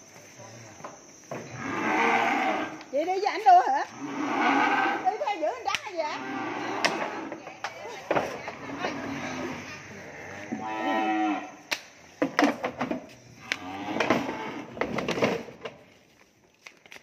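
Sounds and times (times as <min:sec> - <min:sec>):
cow mooing: 0:01.6 - 0:02.8, 0:03.9 - 0:05.2, 0:06.2 - 0:07.3, 0:08.6 - 0:11.6, 0:13.4 - 0:14.7.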